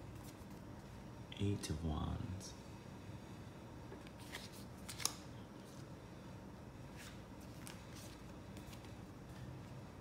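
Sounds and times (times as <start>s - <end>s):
papery card swishes: 4.0s - 5.8s.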